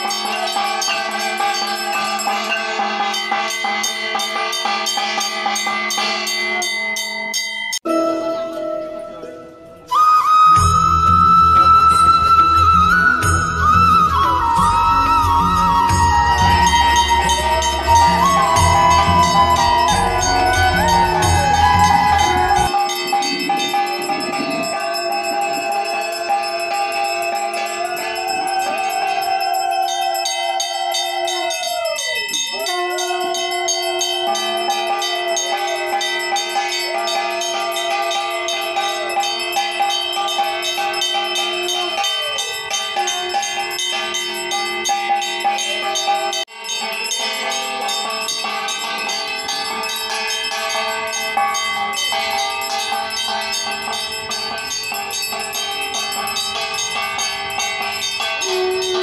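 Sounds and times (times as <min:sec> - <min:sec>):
bells ringing rapidly: 0:00.0 - 0:59.0
long wavering tone: 0:07.9 - 0:46.5, 0:55.4 - 0:59.0.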